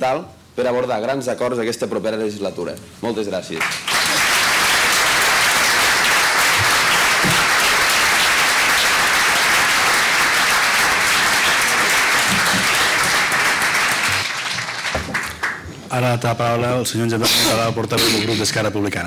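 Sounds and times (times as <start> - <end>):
audience clapping: 3.6 - 15.8.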